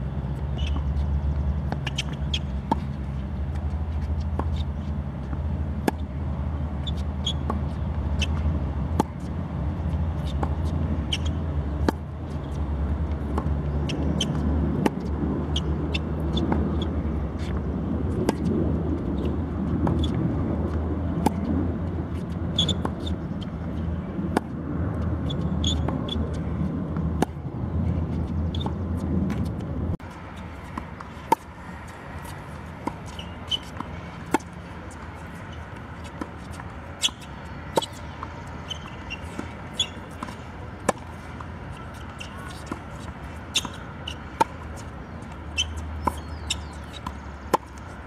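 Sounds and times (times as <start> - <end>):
tennis balls struck by racket: 0.3 - 48.0
balls bouncing on hard court: 6.8 - 47.9
steady low rumble: 23.2 - 33.2.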